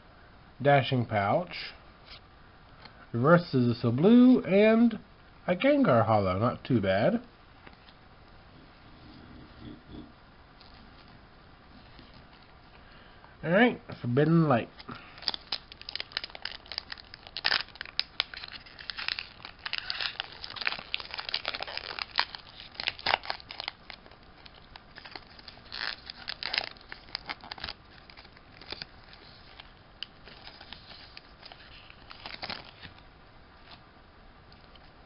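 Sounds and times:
foil wrapper crinkling and tearing: 14.8s - 33.0s.

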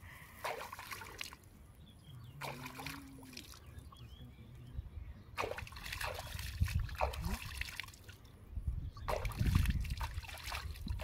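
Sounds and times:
shallow water splashing: 0.4s - 1.5s, 2.4s - 3.7s, 5.4s - 8.2s, 9.1s - 11.0s.

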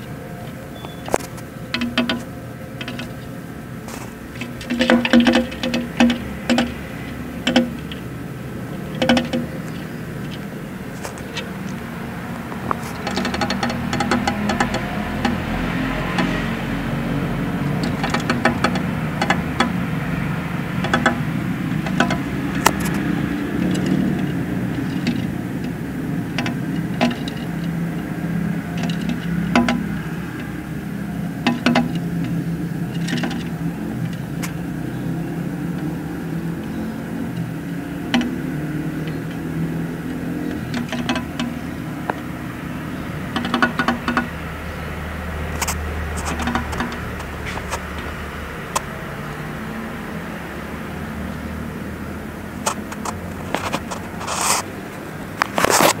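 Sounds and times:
low engine-like hum: 0.0s - 56.0s
bird tapping on window glass: 0.9s - 3.2s, 4.4s - 8.1s, 8.9s - 10.4s, 12.5s - 16.4s, 17.6s - 20.0s, 20.7s - 30.0s, 31.4s - 34.6s, 37.4s - 42.3s, 43.2s - 44.4s, 45.6s - 48.1s.

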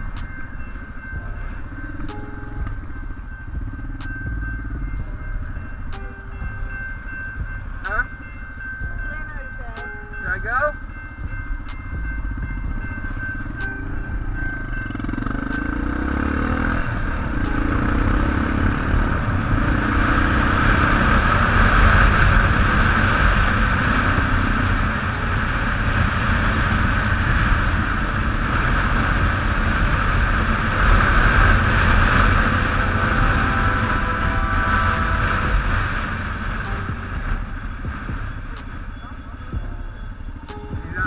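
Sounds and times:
motorcycle engine running: 0.0s - 41.0s
wind noise on microphone: 16.5s - 39.9s.

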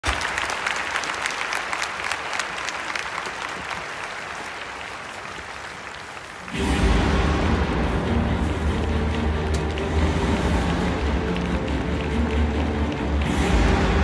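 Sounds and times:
stadium crowd clapping: 0.0s - 14.0s
deep sound over loudspeakers: 6.5s - 14.0s.

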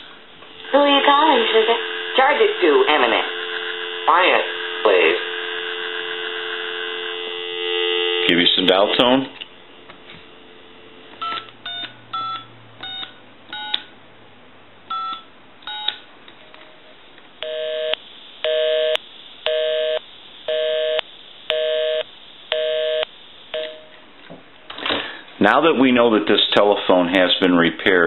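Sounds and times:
telephone busy signal: 11.2s - 13.8s
touch-tone dialing beeps: 11.2s - 13.8s, 14.9s - 16.0s.

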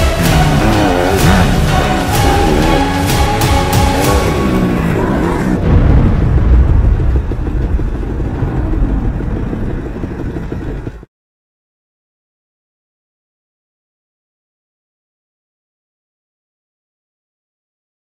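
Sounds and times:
music: 0.0s - 6.0s
loud low rumbling: 0.0s - 11.1s.

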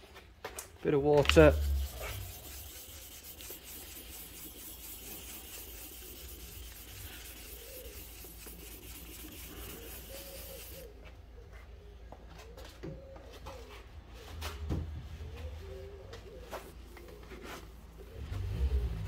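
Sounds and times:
sandpaper rubbing wet paint: 1.2s - 10.9s.

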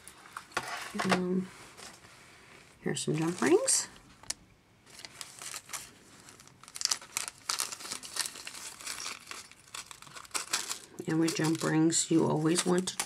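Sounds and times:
plastic bag crinkling: 3.1s - 13.0s.

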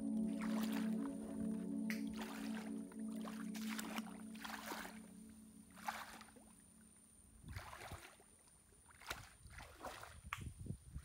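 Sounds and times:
background music: 0.0s - 6.9s
boots wading through muddy water: 2.0s - 5.1s, 5.8s - 6.4s, 7.5s - 10.3s.

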